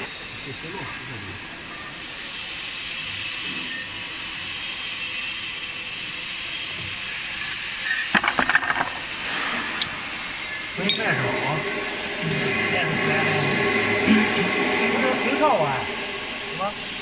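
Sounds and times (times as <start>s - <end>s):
steel parts clinking and rattling: 7.8s - 9.0s.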